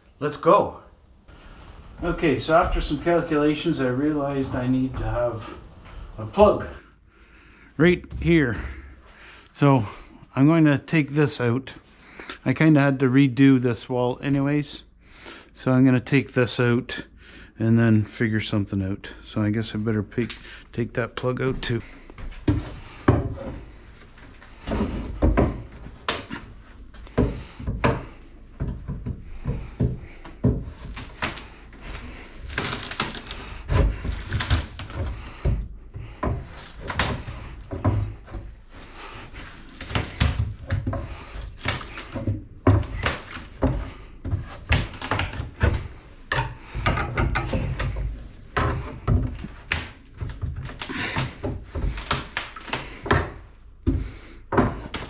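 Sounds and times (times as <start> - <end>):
wall material scraping: 1.3 - 6.8, 22.4 - 55.0
wooden thuds and knocks: 1.3 - 6.8, 21.5 - 55.0.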